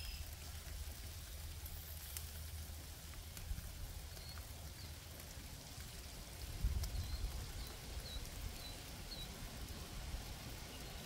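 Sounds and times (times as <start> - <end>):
wind rumble on microphone: 5.8 - 11.0.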